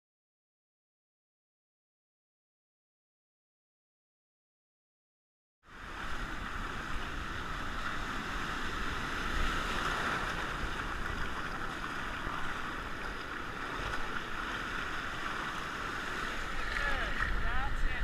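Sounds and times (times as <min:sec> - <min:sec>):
low rumble of waves: 0:05.7 - 0:18.0
surf rushing: 0:05.7 - 0:18.0.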